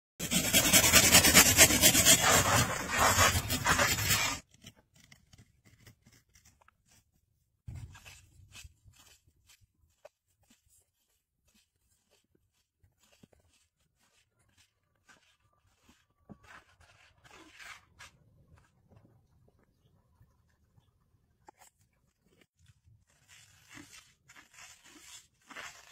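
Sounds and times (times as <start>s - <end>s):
hand saw cutting wood: 0.2s - 6.6s, 13.1s - 18.2s
knife scraping wood: 0.2s - 18.8s, 21.4s - 25.9s.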